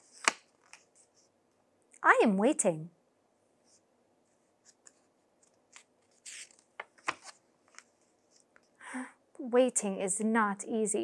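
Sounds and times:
book page turning: 0.0 - 1.3, 3.7 - 8.7.

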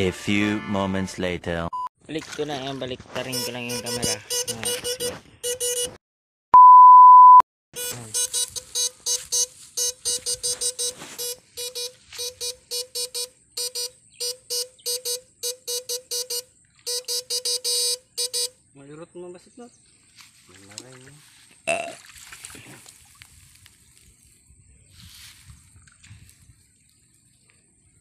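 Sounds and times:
long steady beep: 1.7 - 1.9, 3.2 - 6.0, 6.6 - 18.6
short electronic beeps: 1.7 - 1.9, 3.2 - 6.0, 6.6 - 18.5.

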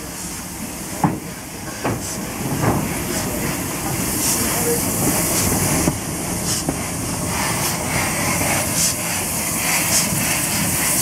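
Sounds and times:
steam hissing: 0.0 - 11.0
steam locomotive chuffing: 0.0 - 11.0.

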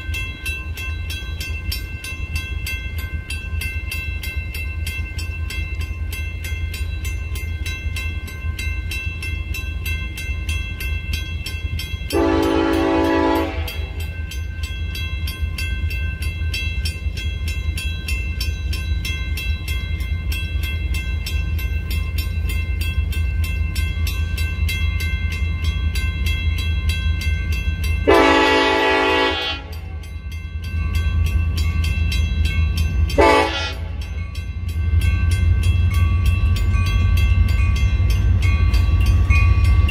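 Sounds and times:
crossing bell ringing: 0.0 - 39.9
locomotive air horn: 12.1 - 14.0, 28.1 - 29.8, 33.2 - 34.0.

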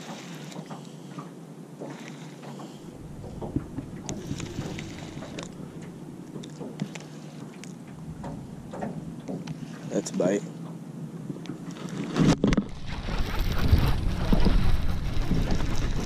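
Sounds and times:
water lapping at boat: 0.0 - 16.0
low wind rumble: 2.8 - 11.6, 12.7 - 16.0.

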